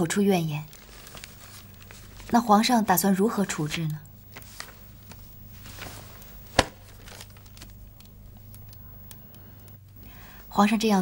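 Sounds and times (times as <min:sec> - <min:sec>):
low steady hum: 0:00.0 - 0:11.0
faint rustles: 0:03.7 - 0:07.9.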